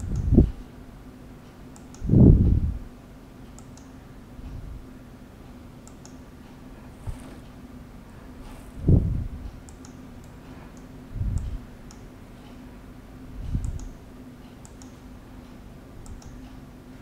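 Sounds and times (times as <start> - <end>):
computer mouse clicking: 0.0 - 0.4, 1.7 - 2.1, 3.5 - 4.0, 5.8 - 6.2, 9.5 - 12.1, 13.4 - 15.0, 16.0 - 16.6
steady low hum: 0.0 - 17.0
dull low thumps: 8.7 - 9.6.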